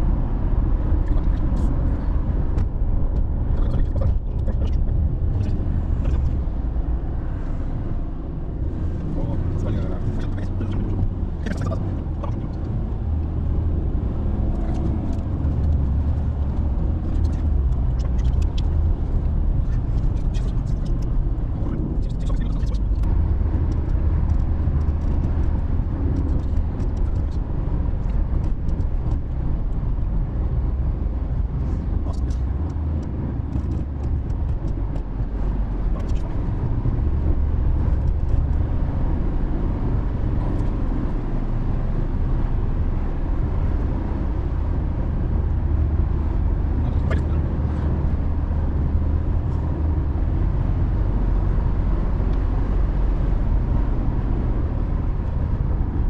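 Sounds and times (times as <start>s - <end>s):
engine and tyre rumble: 0.0s - 56.0s.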